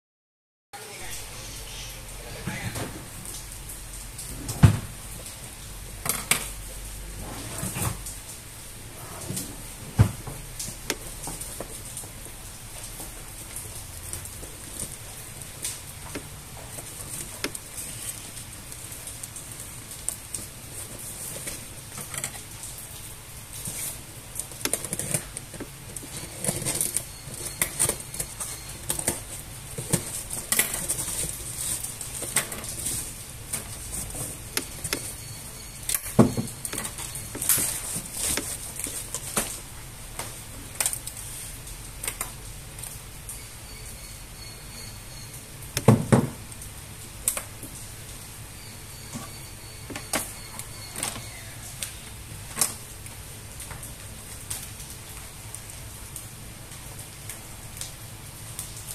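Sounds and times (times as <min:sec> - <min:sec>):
packing tape and plastic crackling: 0:05.1 - 0:43.0.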